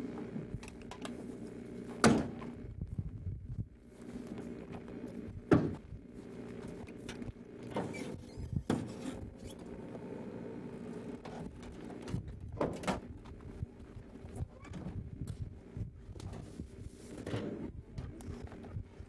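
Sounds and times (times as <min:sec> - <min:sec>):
steady low hum: 0:00.0 - 0:19.0.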